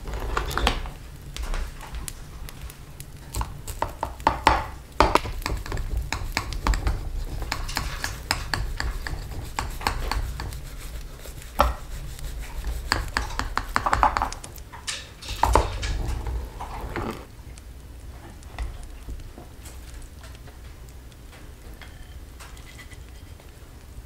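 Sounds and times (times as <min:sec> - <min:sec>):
utensils clicking on dishes: 0:03.3 - 0:17.3.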